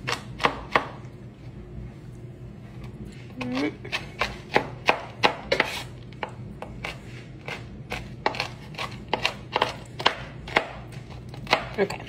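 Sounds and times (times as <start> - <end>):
knife chopping on wooden board: 0.0 - 1.0, 3.4 - 12.0.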